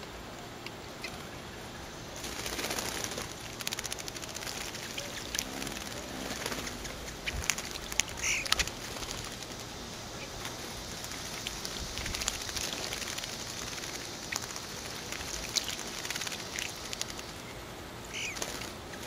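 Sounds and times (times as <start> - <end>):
birds splashing in water: 1.0 - 19.0
high bird chirp: 8.2 - 8.6, 17.4 - 19.0.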